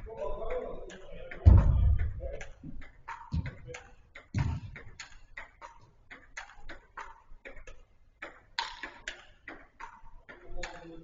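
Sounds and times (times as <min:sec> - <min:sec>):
light taps of ball and feet: 0:00.0 - 0:11.0
heavy thuds of ball being struck: 0:01.4 - 0:02.3, 0:03.3 - 0:03.7, 0:04.3 - 0:04.9.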